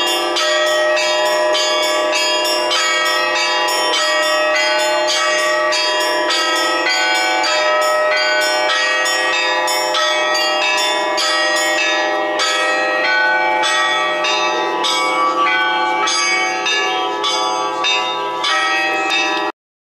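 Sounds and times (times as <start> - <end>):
church bells ringing in a peal: 0.0 - 19.6.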